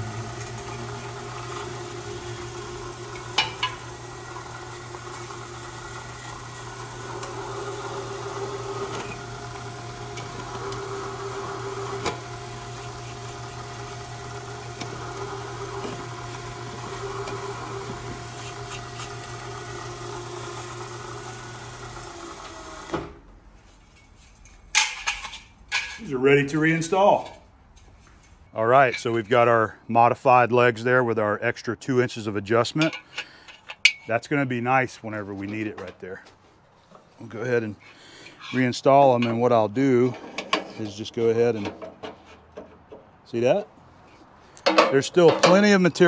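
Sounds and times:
milling machine spindle running: 0.0s - 23.0s
metal clanks: 3.2s - 3.8s, 32.8s - 34.1s, 44.5s - 45.8s.

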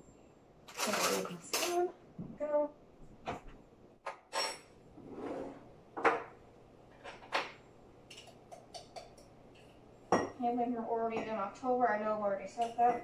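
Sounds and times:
kitchen knocks and clunks: 5.9s - 9.2s, 10.1s - 10.4s.

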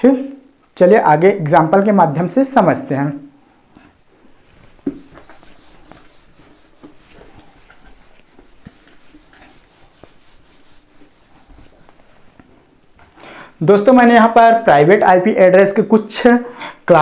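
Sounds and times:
eraser wiping whiteboard: 4.4s - 12.7s.

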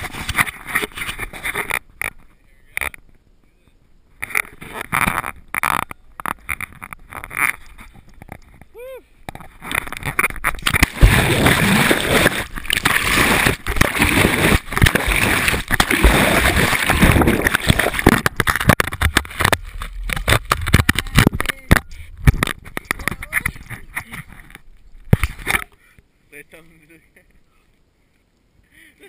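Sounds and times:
water splashing and churning: 9.5s - 25.7s
camera knocks and bumps: 12.5s - 25.6s.

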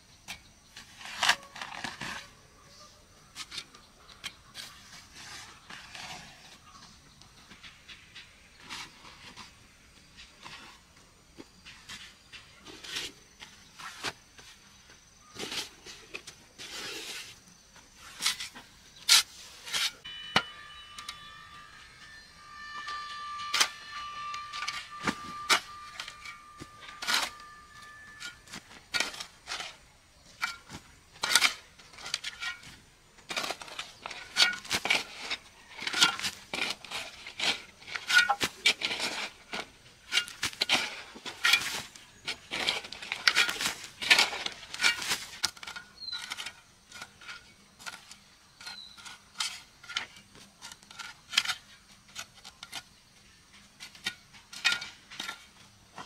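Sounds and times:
steady high tone: 20.0s - 28.5s.

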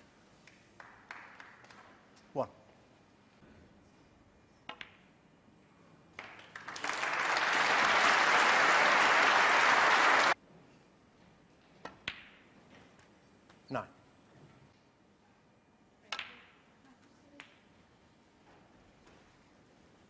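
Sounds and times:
audience applause: 6.2s - 10.4s.

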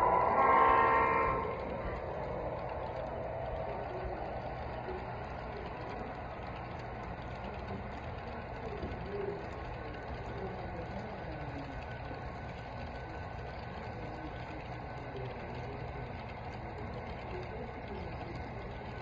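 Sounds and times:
model train wheels clattering: 0.0s - 19.0s.

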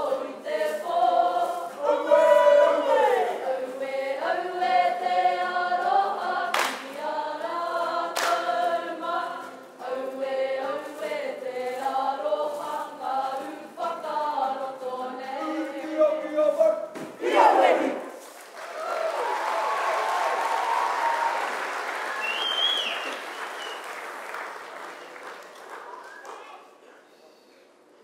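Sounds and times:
group of voices singing: 0.0s - 18.2s.

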